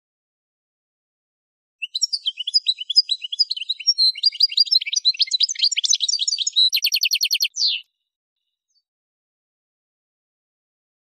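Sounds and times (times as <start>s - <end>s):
goldfinch singing: 1.8s - 7.9s.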